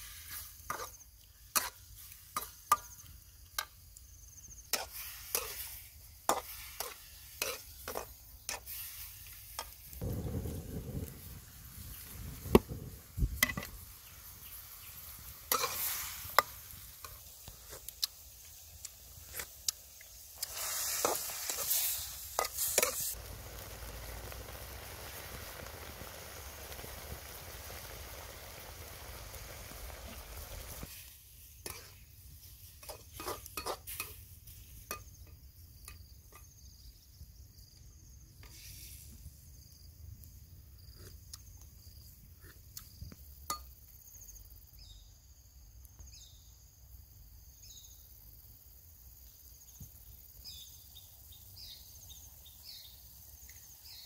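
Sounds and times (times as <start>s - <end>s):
metal spatula scraping a wok: 0.0s - 2.9s, 4.7s - 9.9s, 15.5s - 17.9s, 20.4s - 23.2s, 31.6s - 32.0s, 32.7s - 34.2s
food sizzling in a wok: 0.0s - 37.6s, 38.2s - 40.9s, 47.4s - 54.0s
insects chirping: 0.0s - 54.0s.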